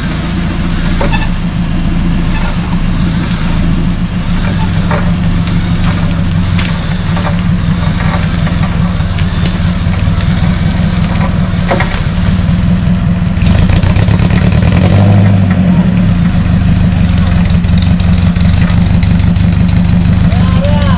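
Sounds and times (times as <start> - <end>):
vehicle engine running: 0.0 - 20.9
branches snapping: 9.1 - 12.1.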